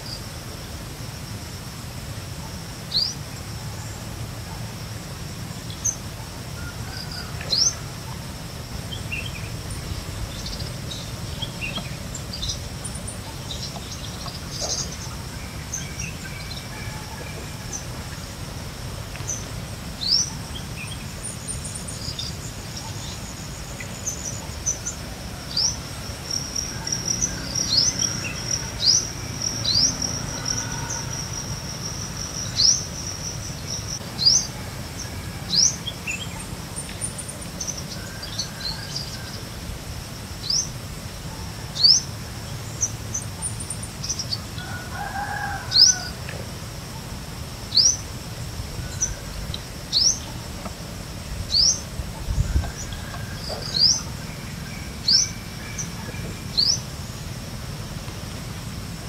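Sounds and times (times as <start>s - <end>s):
high-pitched insect drone: 6.9s - 37.2s.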